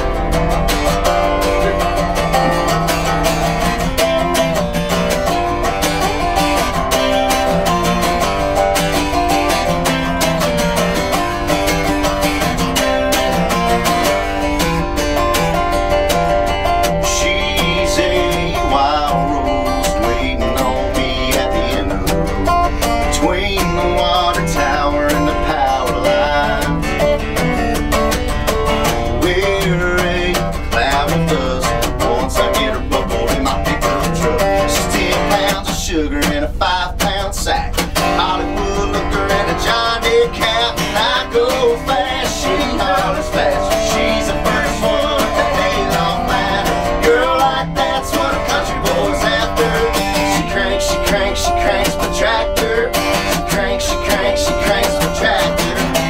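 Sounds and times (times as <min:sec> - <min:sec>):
fingerpicked resonator guitar: 0:00.0 - 0:56.0
strummed acoustic guitar: 0:00.0 - 0:56.0
man singing: 0:01.2 - 0:07.9, 0:16.8 - 0:27.5, 0:28.7 - 0:56.0.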